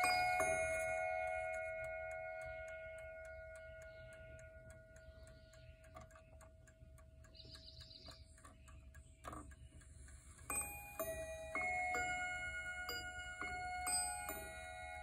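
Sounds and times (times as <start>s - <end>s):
bell-like chime rods: 0.0s - 5.0s, 10.5s - 15.0s
clock ticking: 0.0s - 15.0s.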